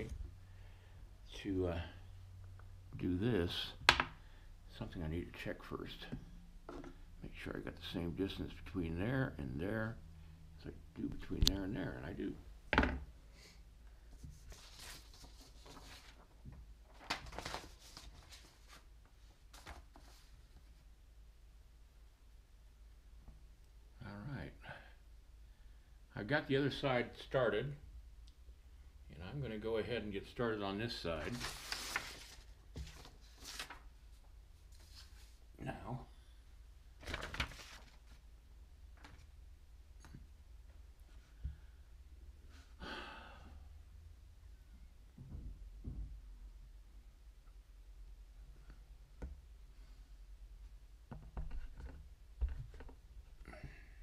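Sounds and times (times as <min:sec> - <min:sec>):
paper rustling and sliding: 0:14.2 - 0:20.6, 0:31.2 - 0:33.9, 0:34.7 - 0:35.4, 0:37.0 - 0:38.2.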